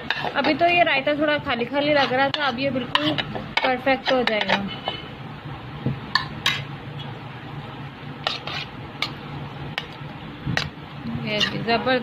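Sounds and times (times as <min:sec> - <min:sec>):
spoon stirring wet food: 0:00.0 - 0:05.2, 0:08.1 - 0:11.9
steady low hum: 0:00.0 - 0:12.0.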